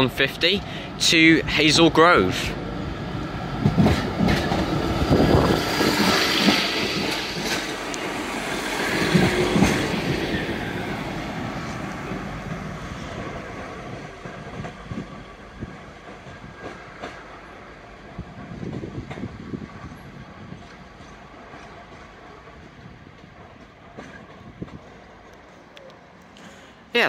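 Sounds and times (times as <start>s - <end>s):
diesel train engines: 0.0s - 27.0s
train wheels knocking over rail joints: 3.6s - 11.1s, 13.7s - 17.5s.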